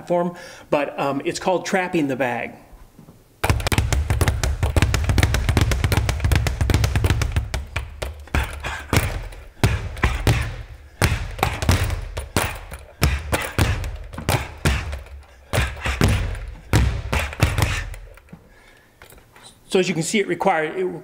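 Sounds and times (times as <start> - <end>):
speed bag punching thuds: 3.4 - 18.3.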